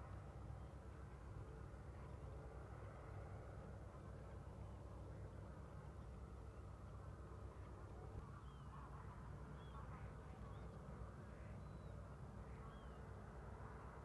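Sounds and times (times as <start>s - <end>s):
low steady rumble: 0.0s - 14.0s
distant waterbird calls: 8.1s - 13.2s.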